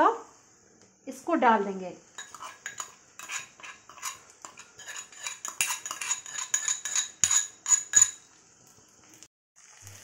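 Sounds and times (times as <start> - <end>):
metal spoon clinking on metal bowl: 2.2 - 8.2.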